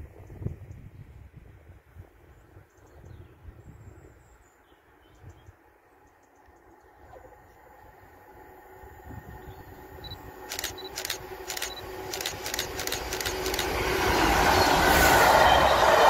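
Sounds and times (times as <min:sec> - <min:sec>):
diesel locomotive rumble: 0:07.6 - 0:16.0
sharp clicks: 0:10.5 - 0:13.8.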